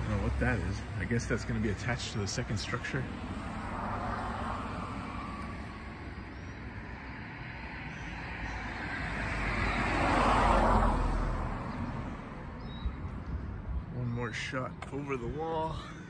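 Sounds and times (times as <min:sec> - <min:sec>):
traffic noise: 0:00.0 - 0:16.0
car passing by: 0:02.7 - 0:06.2, 0:06.9 - 0:12.6.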